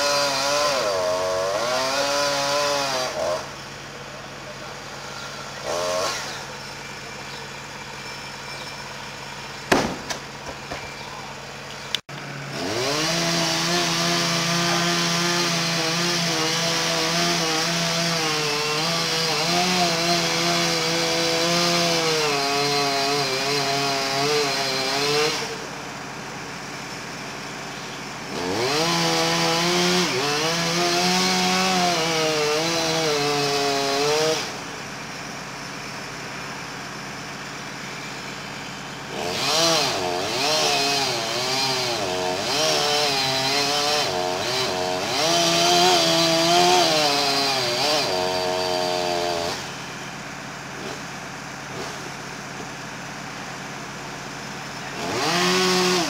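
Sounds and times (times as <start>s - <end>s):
chainsaw cutting wood: 0.0s - 56.0s
sharp knock: 9.7s - 10.8s.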